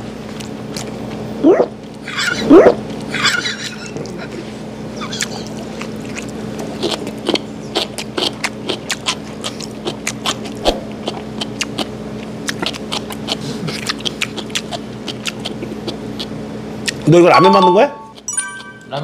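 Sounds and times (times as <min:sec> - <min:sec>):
steady low hum: 0:00.0 - 0:17.3
chewing with mouth clicks: 0:00.2 - 0:01.2, 0:05.1 - 0:17.1.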